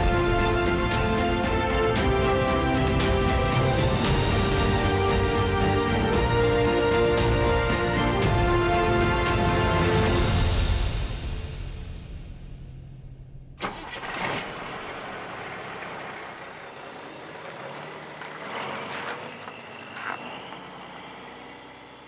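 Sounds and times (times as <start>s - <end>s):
music: 0.0s - 13.6s
vehicle engine running low: 13.6s - 22.0s.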